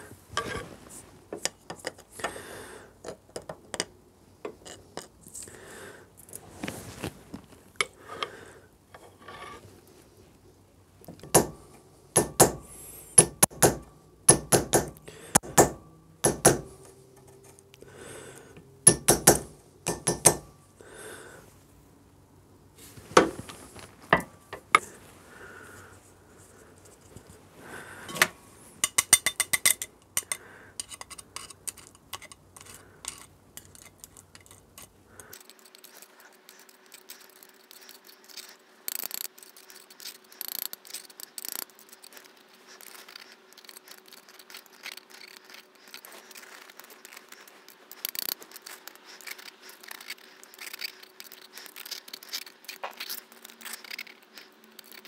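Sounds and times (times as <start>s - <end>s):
hammer tapping metal punch: 11.2s - 16.7s, 18.9s - 20.5s.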